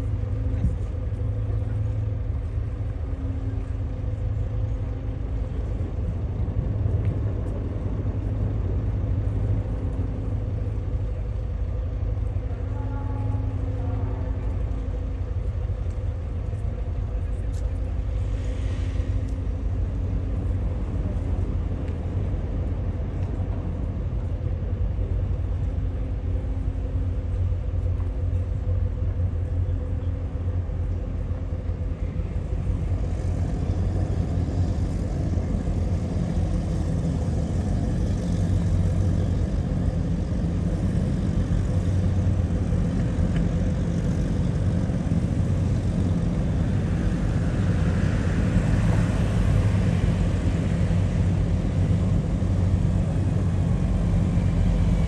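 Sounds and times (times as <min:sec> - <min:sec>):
boat engines rumbling: 0:00.0 - 0:55.0
powerboat passing: 0:00.0 - 0:55.0.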